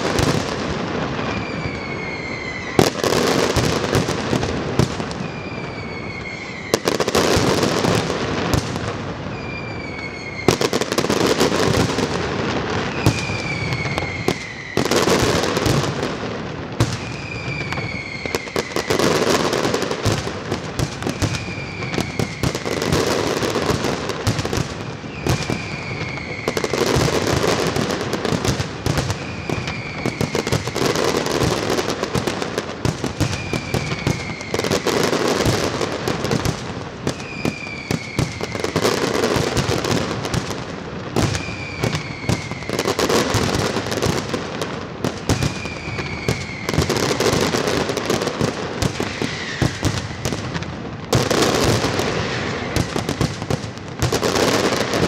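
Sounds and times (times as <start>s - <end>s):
fireworks crackling and bursting: 0.0s - 55.0s
falling whistle tone: 1.3s - 2.8s, 5.2s - 6.9s, 9.3s - 10.7s, 13.0s - 15.0s, 17.0s - 19.0s.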